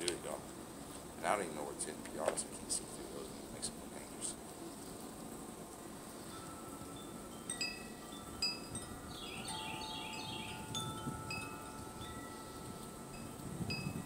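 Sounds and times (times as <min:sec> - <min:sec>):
wind chimes ringing: 0:06.2 - 0:14.0.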